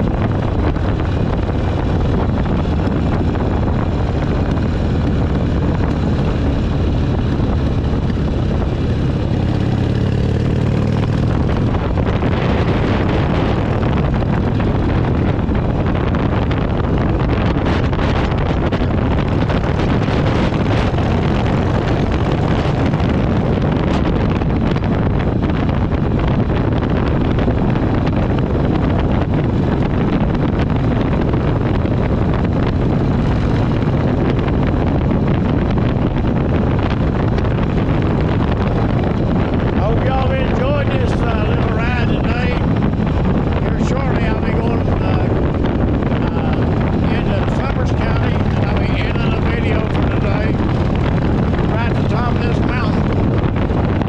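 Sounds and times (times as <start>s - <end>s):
motorcycle engine running: 0.0s - 54.0s
wind buffeting microphone: 0.0s - 54.0s.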